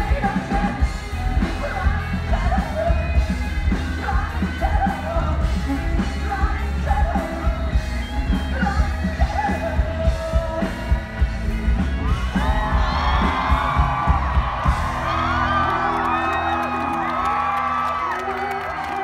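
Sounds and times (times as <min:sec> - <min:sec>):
man singing: 0:00.0 - 0:03.2
live rock band playing: 0:00.0 - 0:19.0.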